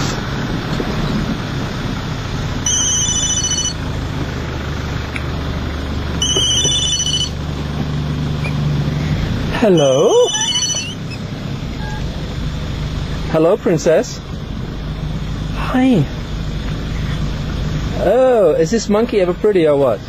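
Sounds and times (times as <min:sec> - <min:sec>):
vehicle engine and road noise: 0:00.0 - 0:20.0
electronic ringtone: 0:02.6 - 0:03.8, 0:06.2 - 0:07.4, 0:09.8 - 0:11.2.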